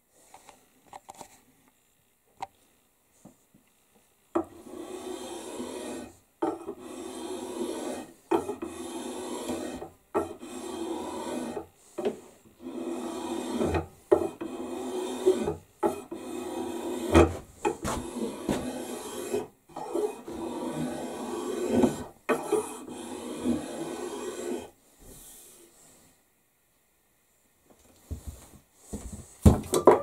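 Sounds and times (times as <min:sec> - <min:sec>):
spokeshave shaving wood: 0:04.5 - 0:17.2, 0:17.8 - 0:24.7.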